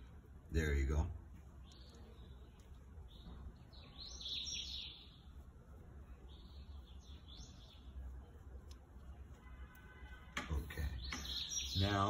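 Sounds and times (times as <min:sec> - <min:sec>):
high-pitched bird chirps: 0:01.6 - 0:05.4, 0:10.9 - 0:12.0
faint low hum: 0:04.9 - 0:11.0.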